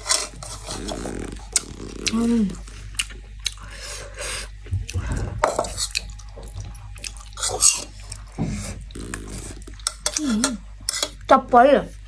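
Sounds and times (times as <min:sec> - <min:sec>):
wet slurping and chewing: 0:00.2 - 0:03.8, 0:04.9 - 0:10.2.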